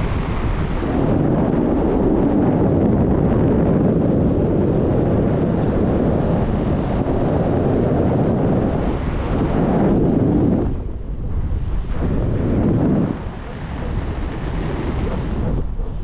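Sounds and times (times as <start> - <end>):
wind rushing over microphone: 0.0 - 16.0.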